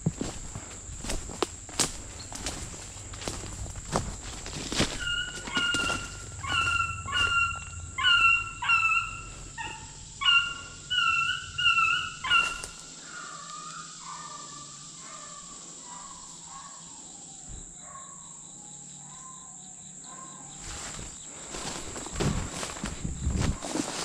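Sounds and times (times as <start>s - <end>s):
footsteps crunching through brush: 0.0s - 9.9s, 12.2s - 12.9s, 20.6s - 24.0s.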